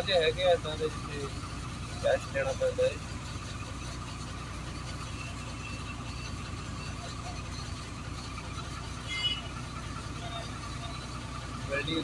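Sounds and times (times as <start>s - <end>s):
diesel truck engine rumble: 0.0s - 12.0s.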